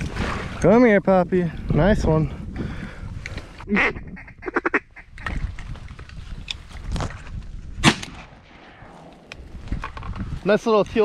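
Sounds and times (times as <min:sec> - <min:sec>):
shotgun shot with echo: 0:07.8 - 0:08.9.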